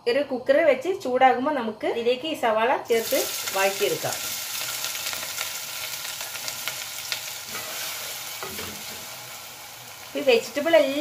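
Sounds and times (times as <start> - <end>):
onions sizzling in oil: 2.9 - 11.0.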